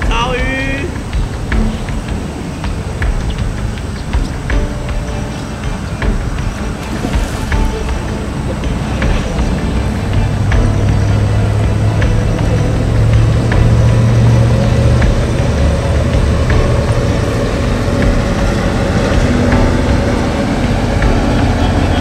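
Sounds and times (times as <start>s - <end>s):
road traffic rumble: 0.0s - 22.0s
low hum: 0.7s - 22.0s.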